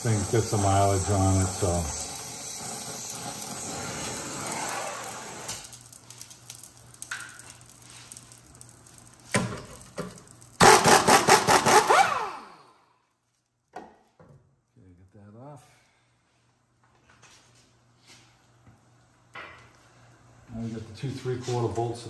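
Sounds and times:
torch hissing: 0:00.0 - 0:12.9.

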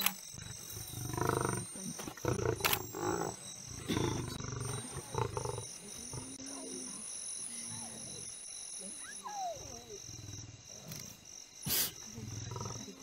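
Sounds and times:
lions growling and snarling: 0:00.3 - 0:06.9, 0:09.3 - 0:13.0.

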